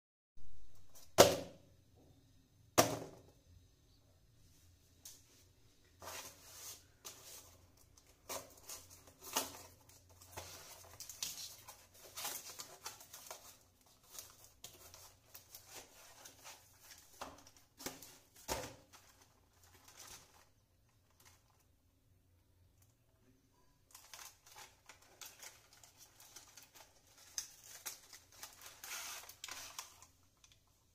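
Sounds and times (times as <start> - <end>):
packing tape tearing: 24.0 - 30.6.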